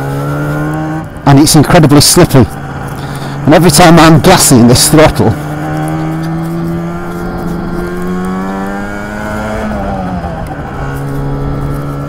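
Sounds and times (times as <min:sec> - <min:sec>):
scooter engine revving: 0:05.1 - 0:12.0.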